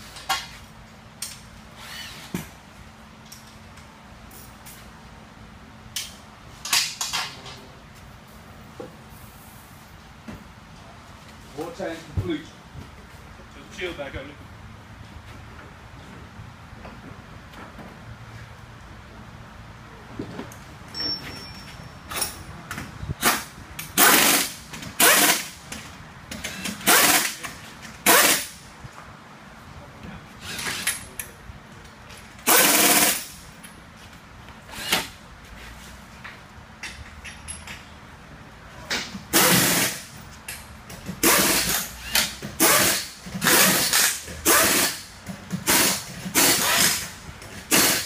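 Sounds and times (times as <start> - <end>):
pneumatic impact wrench rattling: 1.2 - 2.5, 20.9 - 28.6, 30.4 - 31.2, 32.3 - 33.6, 34.7 - 35.2, 39.0 - 48.0.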